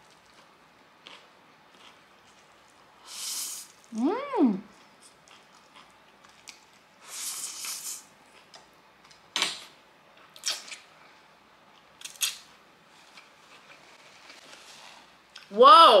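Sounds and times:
wet mouth smacks: 0:10.4 - 0:10.8.

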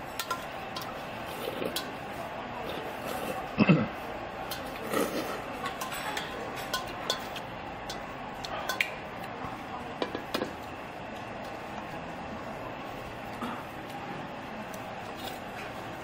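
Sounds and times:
metal chopsticks clinking on bowls: 0:00.2 - 0:02.0, 0:04.4 - 0:08.9.

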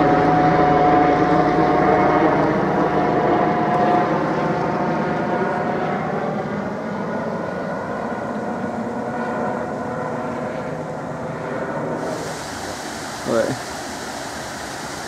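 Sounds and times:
engine drone: 0:00.0 - 0:15.0
flowing water rushing: 0:12.0 - 0:15.0.

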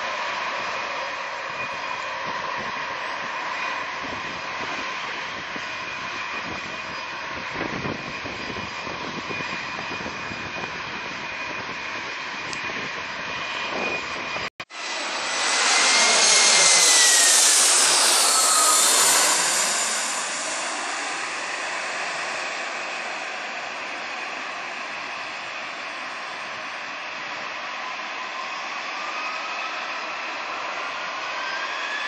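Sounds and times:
jet engine whine: 0:00.0 - 0:32.0
jet passing overhead: 0:13.2 - 0:27.2.

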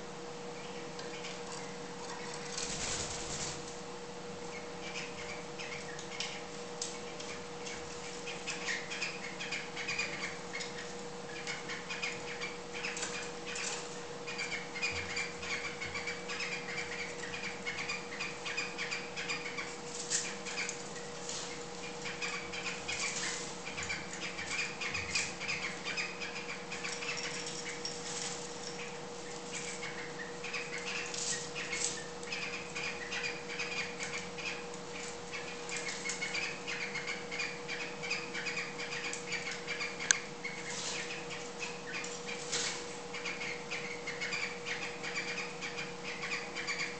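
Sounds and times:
birds chirping and twittering: 0:00.1 - 0:46.9
wings flapping: 0:02.2 - 0:03.8.

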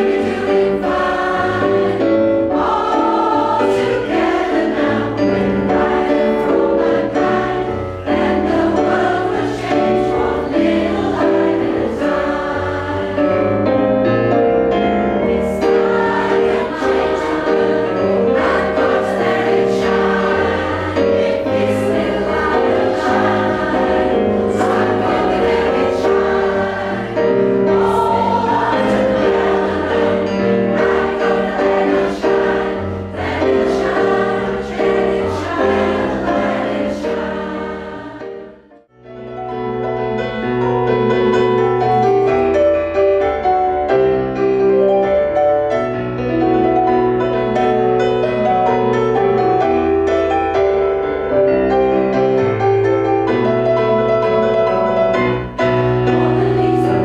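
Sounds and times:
choir singing: 0:00.0 - 0:14.1, 0:14.8 - 0:38.8, 0:54.1 - 0:57.0
keyboard accompaniment: 0:00.0 - 0:57.0.

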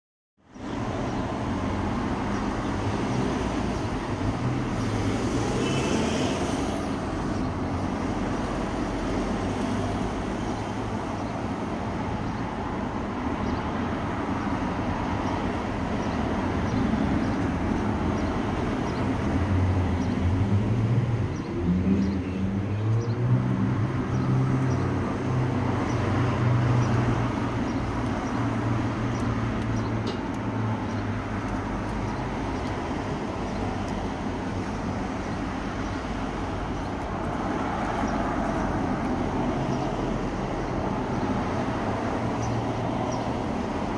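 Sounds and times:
cars passing: 0:00.5 - 0:43.9.

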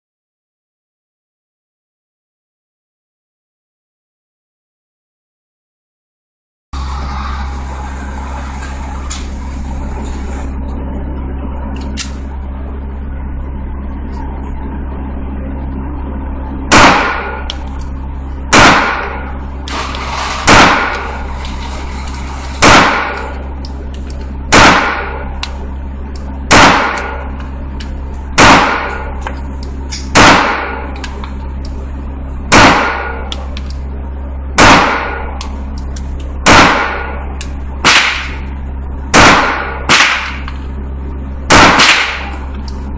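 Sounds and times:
low hum: 0:06.8 - 0:42.9
pistol shots echoing indoors: 0:16.7 - 0:17.3, 0:18.5 - 0:19.2, 0:20.4 - 0:21.2, 0:24.5 - 0:25.2, 0:26.5 - 0:27.2, 0:28.4 - 0:29.0, 0:30.1 - 0:30.9, 0:32.5 - 0:33.3, 0:34.6 - 0:35.3, 0:36.4 - 0:37.1, 0:37.8 - 0:38.5, 0:39.1 - 0:40.5, 0:41.5 - 0:42.4.

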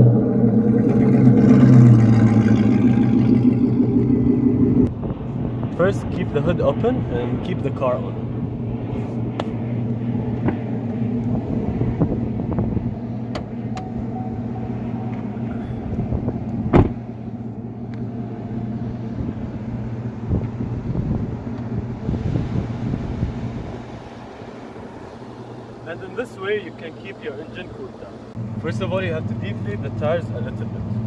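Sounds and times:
pickup engine idling: 0:00.0 - 0:05.4, 0:12.0 - 0:22.1.

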